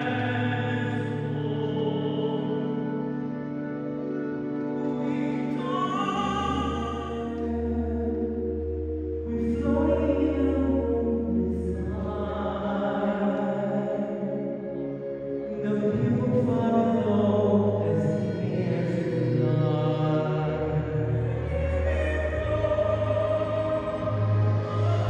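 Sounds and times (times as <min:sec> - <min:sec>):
operatic singer holding long notes: 0:00.0 - 0:25.0
deep sustained note: 0:14.8 - 0:25.0.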